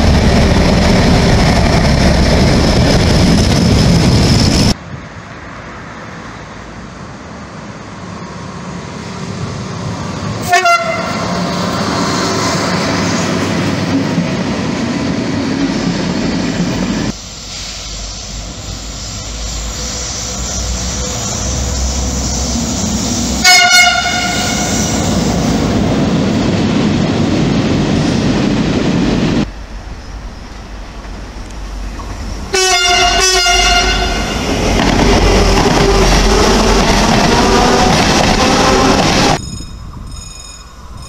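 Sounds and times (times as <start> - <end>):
train running on rails: 0.0 - 41.0
quick train horn toots: 10.4 - 11.4, 23.4 - 25.1, 32.5 - 34.6
train horn blast: 10.4 - 11.5, 23.4 - 25.2, 32.5 - 34.6, 37.3 - 39.4.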